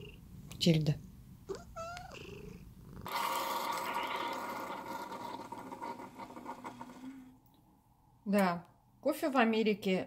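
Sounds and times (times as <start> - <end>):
cat purring: 0.0 - 0.4, 1.4 - 7.4
steady hiss with whirring hum: 0.0 - 10.0
cat meowing: 1.5 - 4.6.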